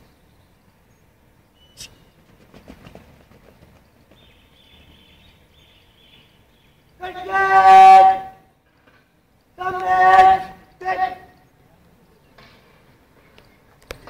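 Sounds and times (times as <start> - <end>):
person shouting drill command: 7.0 - 8.4, 9.6 - 11.4.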